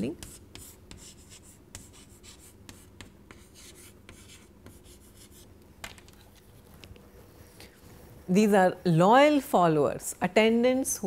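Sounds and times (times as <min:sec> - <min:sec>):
chalk scratching on chalkboard: 0:00.0 - 0:05.5.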